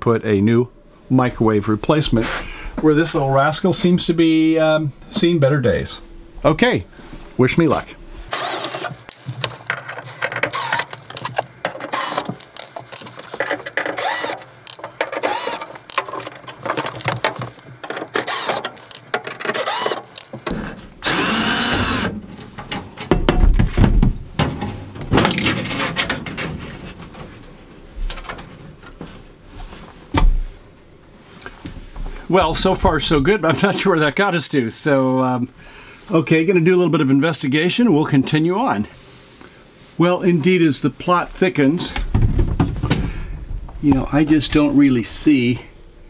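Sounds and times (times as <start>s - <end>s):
cordless drill running: 8.3s - 9.2s, 10.0s - 13.1s, 13.8s - 16.1s, 18.1s - 22.1s
metal panel knocking and rattling: 22.2s - 27.0s.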